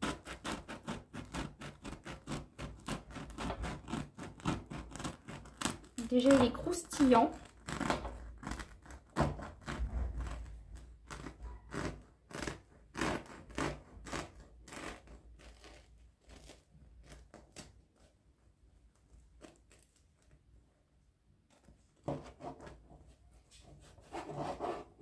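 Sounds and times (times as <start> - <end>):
knife sawing through bread crust: 0.0 - 17.7, 23.6 - 25.0.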